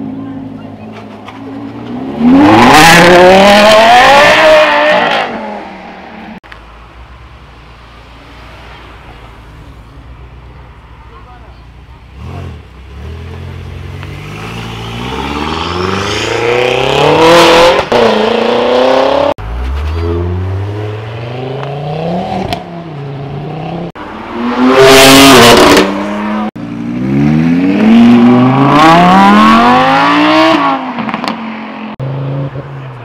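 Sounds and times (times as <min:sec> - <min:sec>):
cars accelerating hard: 0:01.6 - 0:05.9, 0:12.2 - 0:33.0.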